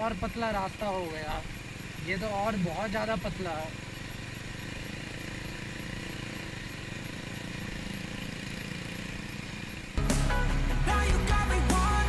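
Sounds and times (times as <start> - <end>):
motorcycle engine running: 0.0 - 12.0
loud guitar music: 10.0 - 12.0.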